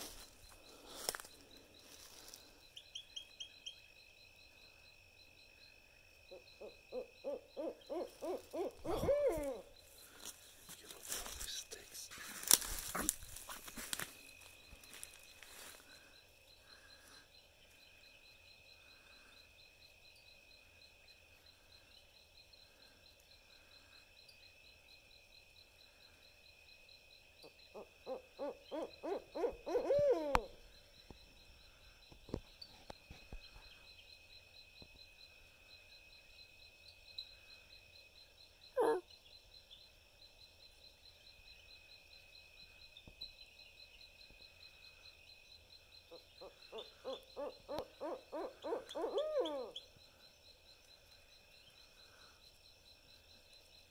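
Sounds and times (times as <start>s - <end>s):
insects chirping: 0.0s - 53.9s
insects trilling: 0.0s - 53.9s
owl call: 6.3s - 9.7s, 27.4s - 30.6s, 38.8s - 39.1s, 46.1s - 49.9s.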